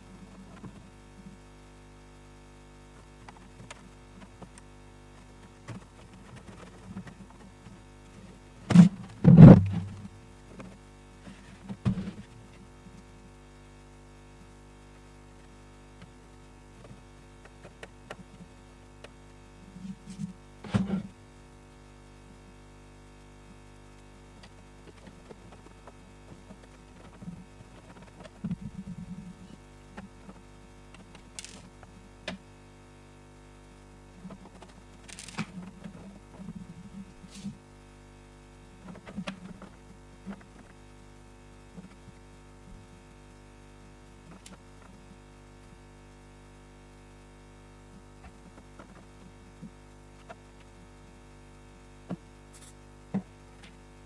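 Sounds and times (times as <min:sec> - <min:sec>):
steady low hum: 0:00.0 - 0:54.0
plastic model scraping thud: 0:08.7 - 0:10.0, 0:20.6 - 0:21.1
hands handling plastic model: 0:31.4 - 0:31.7, 0:35.1 - 0:35.6.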